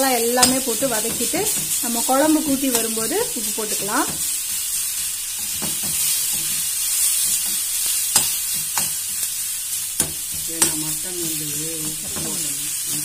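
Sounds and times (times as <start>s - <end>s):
onions sizzling in hot oil: 0.0s - 13.0s
spatula tapping against pan: 0.3s - 1.8s, 5.4s - 6.5s, 7.2s - 9.0s, 10.0s - 10.9s.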